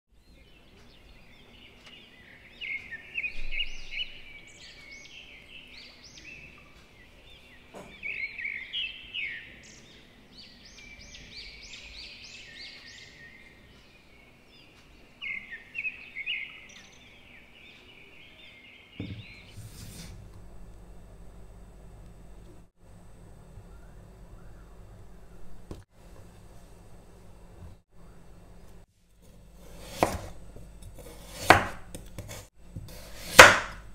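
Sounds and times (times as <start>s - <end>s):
songbird chirping: 0.1s - 19.6s, 23.4s - 25.8s
knock on wooden cutting board: 19.0s - 19.4s.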